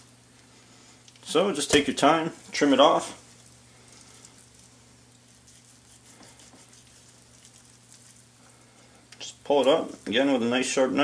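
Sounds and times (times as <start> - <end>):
low steady hum: 0.0 - 11.0
knife slicing meat: 4.4 - 8.2.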